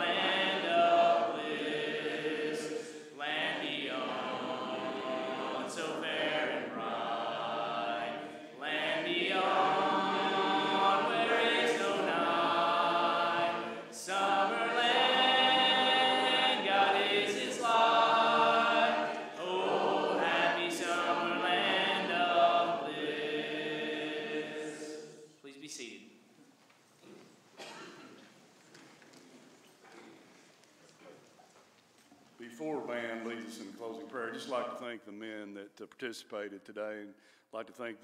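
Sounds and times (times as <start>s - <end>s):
congregation singing a hymn: 0.0s - 25.4s.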